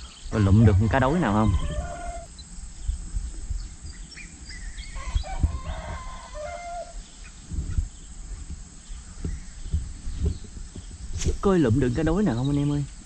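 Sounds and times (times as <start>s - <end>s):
rooster crowing: 0.3s - 2.4s, 4.8s - 7.0s
low thumps and rumble: 0.4s - 1.8s, 7.4s - 12.2s.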